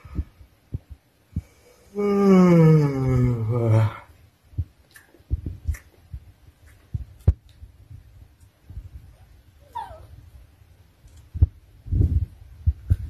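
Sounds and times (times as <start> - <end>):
puppy whimpering whine: 9.6 - 10.2.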